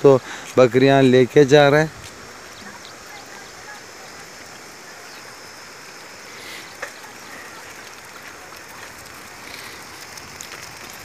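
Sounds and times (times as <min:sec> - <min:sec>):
hooves pattering on concrete: 0:06.6 - 0:11.0.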